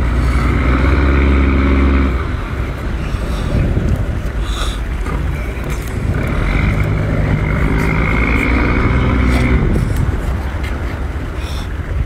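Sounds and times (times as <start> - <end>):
low engine rumble: 0.0 - 12.0.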